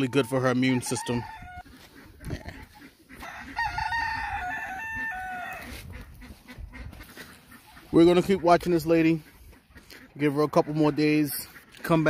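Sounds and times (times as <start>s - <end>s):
rooster crowing: 0.7s - 1.7s, 3.2s - 5.8s.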